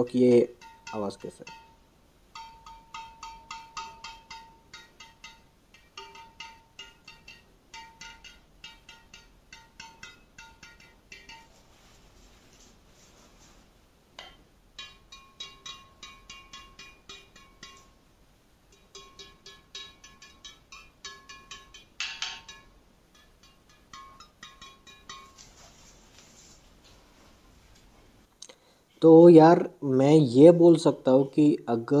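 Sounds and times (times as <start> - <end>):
racket strings pinging: 0.0 - 12.0, 14.2 - 25.9.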